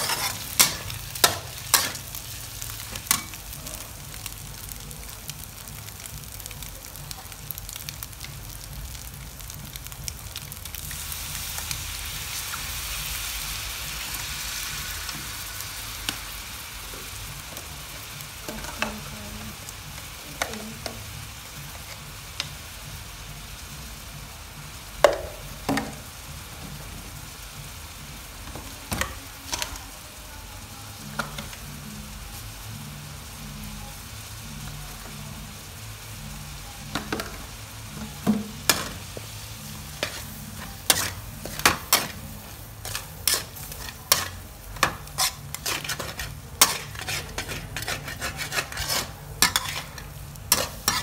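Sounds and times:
metal spatula scraping wok: 0.0 - 2.1, 39.9 - 51.0
eggs sizzling in oil: 0.0 - 51.0.

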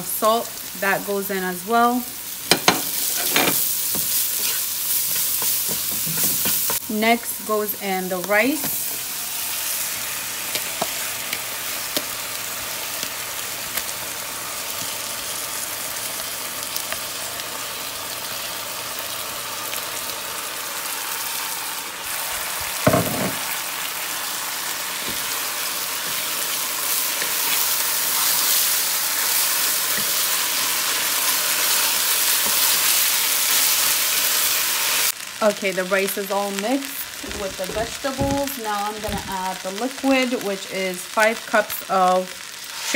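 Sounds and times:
rice sizzling in pot: 0.0 - 37.6, 39.3 - 42.9.

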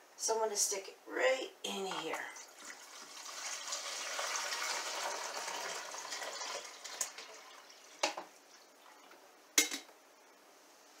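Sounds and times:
water pouring into reservoir: 2.4 - 9.2.

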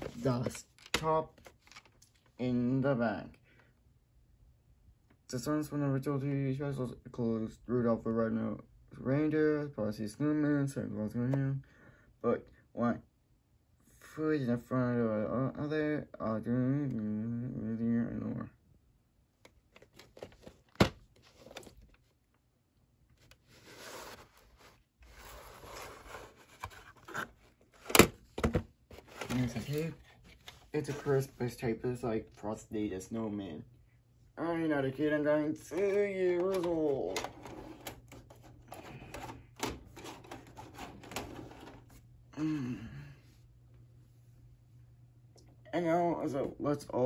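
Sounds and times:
hands scraping plastic case: 23.4 - 28.1.

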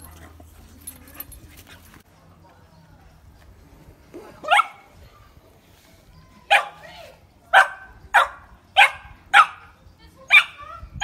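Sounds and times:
puppy barking: 4.4 - 4.8, 7.5 - 9.7, 10.3 - 10.6.

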